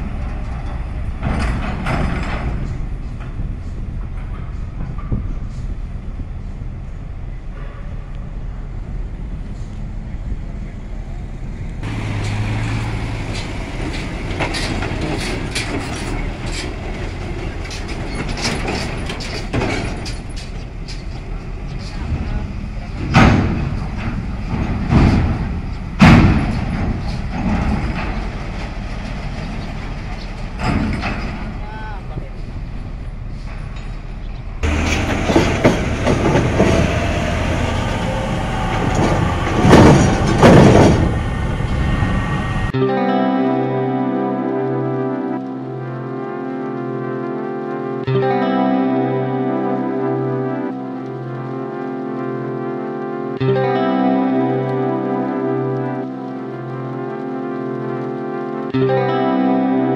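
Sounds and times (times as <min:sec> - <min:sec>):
wheels clanking on ramp plates: 0:00.0 - 0:05.9, 0:11.8 - 0:42.1
truck engine humming: 0:00.0 - 0:59.9.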